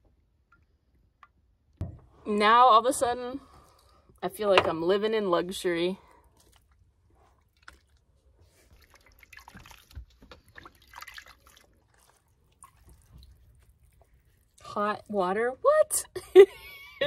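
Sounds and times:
water splashing and dripping: 7.4 - 15.3.

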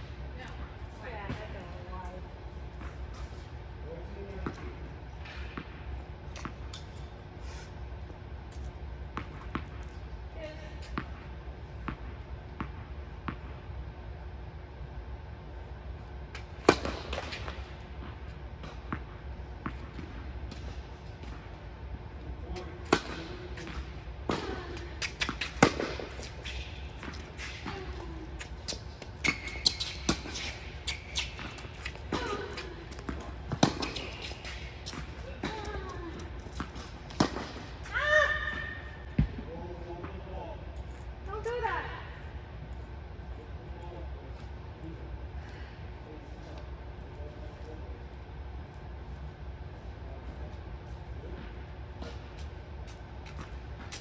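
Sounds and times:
steady low hum: 0.0 - 54.0
ball bouncing on hard court: 0.4 - 3.1, 8.5 - 9.9, 10.8 - 13.6, 16.3 - 21.5, 22.5 - 40.2
racket striking tennis ball: 16.4 - 17.7, 22.8 - 37.9.

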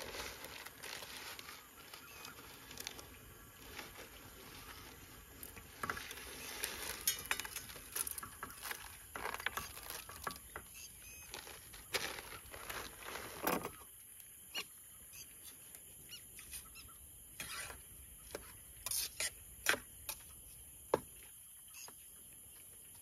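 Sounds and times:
plastic packet crinkling: 0.0 - 10.4, 11.2 - 13.6.

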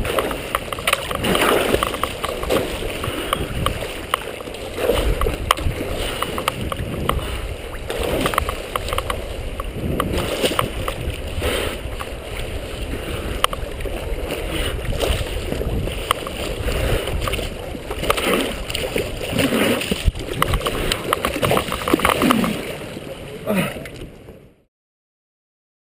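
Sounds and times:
drops and bubbles ticking: 0.0 - 11.0, 15.7 - 22.6
lake water sloshing and splashing: 0.0 - 24.5.

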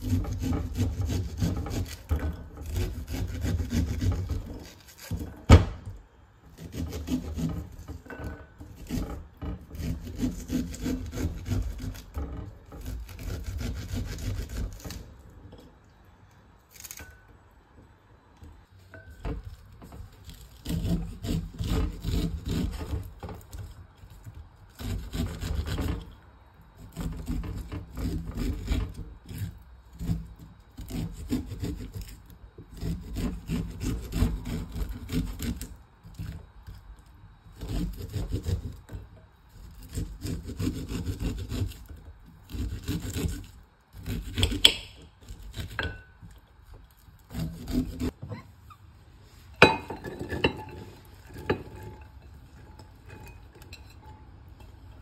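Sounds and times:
knife cutting corn kernels: 0.0 - 5.5, 16.7 - 17.1, 39.8 - 46.4.

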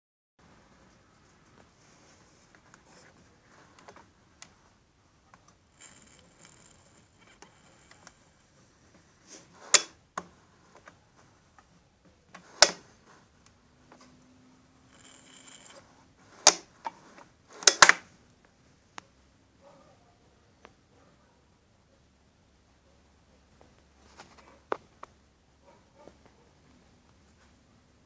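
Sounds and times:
handling noise: 5.3 - 11.3, 12.1 - 13.3, 14.9 - 18.1.

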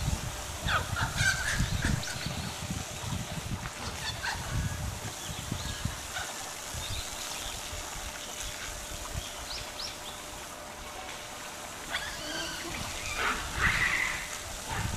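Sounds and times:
steady outdoor hiss: 0.0 - 14.9
high-pitched animal calls: 11.9 - 14.8.

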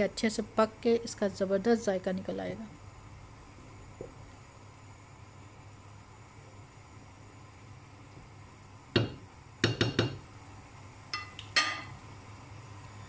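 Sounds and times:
cookware clinking against a pot: 11.2 - 12.0.

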